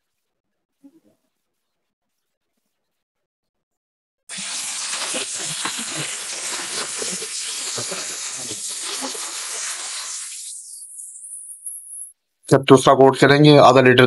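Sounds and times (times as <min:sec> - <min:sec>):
spray gun hissing: 0:04.3 - 0:11.9.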